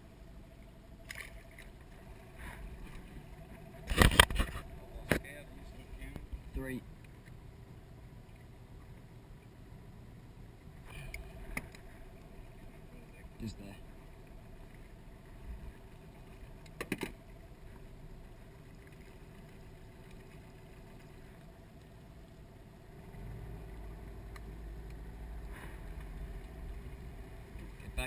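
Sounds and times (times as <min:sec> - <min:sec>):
boat motor humming: 0:00.0 - 0:28.0.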